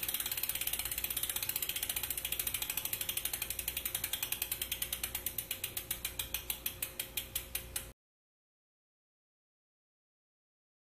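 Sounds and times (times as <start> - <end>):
bicycle freewheel ratcheting clicks: 0.0 - 8.0.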